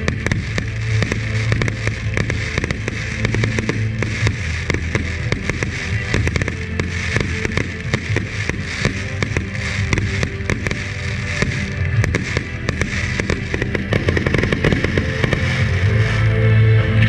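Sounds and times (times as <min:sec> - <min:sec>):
fireworks bangs and crackles: 0:00.0 - 0:16.7
music with tonal backing: 0:00.0 - 0:17.0.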